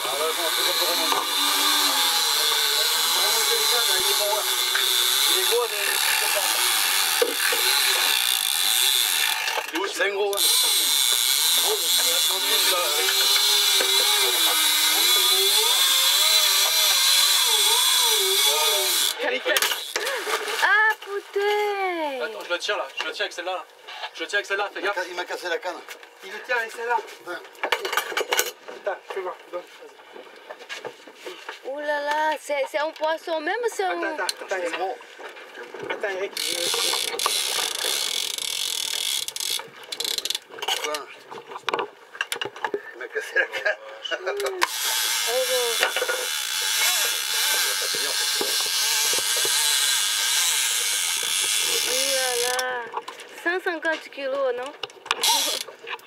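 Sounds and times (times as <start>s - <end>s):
fishing reel drag screaming: 0.0s - 9.7s, 10.4s - 20.2s, 36.4s - 40.4s, 44.6s - 52.7s, 55.2s - 55.7s.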